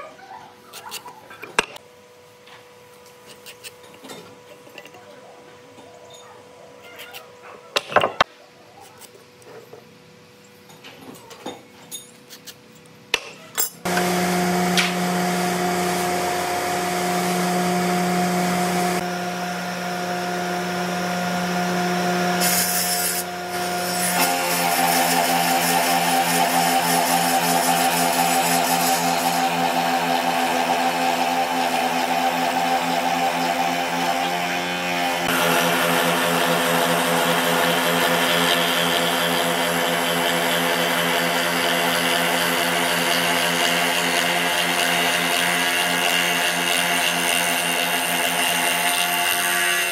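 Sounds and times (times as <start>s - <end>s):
spindle moulder motor hum: 13.8s - 49.9s
spinning cutter whirring: 13.8s - 49.9s.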